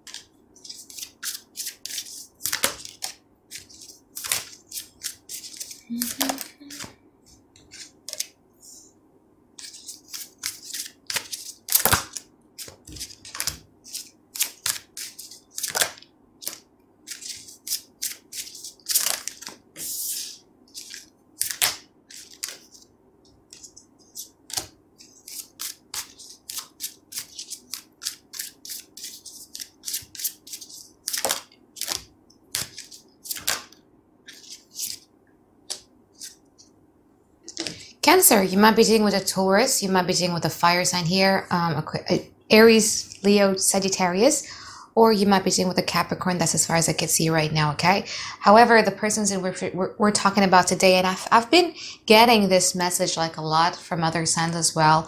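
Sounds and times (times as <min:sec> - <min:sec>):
cards being shuffled: 0:00.0 - 0:08.3, 0:09.6 - 0:22.9, 0:23.5 - 0:35.1, 0:35.7 - 0:36.4.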